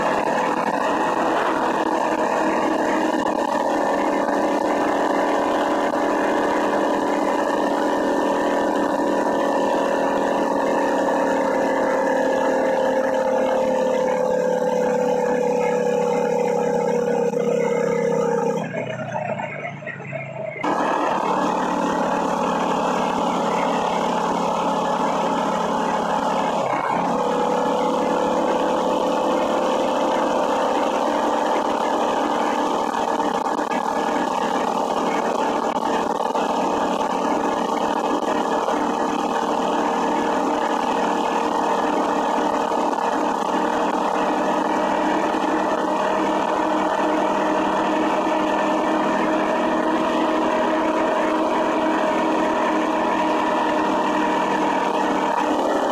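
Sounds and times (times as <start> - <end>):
small motorbike engine running: 0.0 - 55.9.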